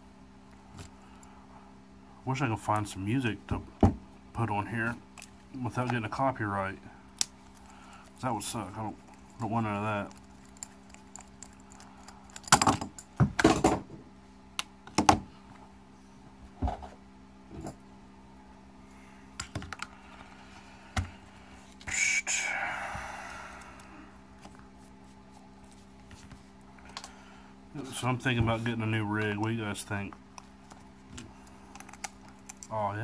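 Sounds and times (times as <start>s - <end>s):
faint hum: 0.0s - 33.0s.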